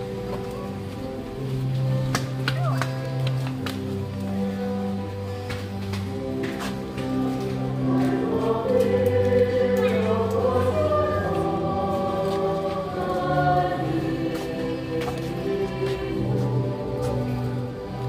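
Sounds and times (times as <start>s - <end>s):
choir singing: 7.0s - 18.0s.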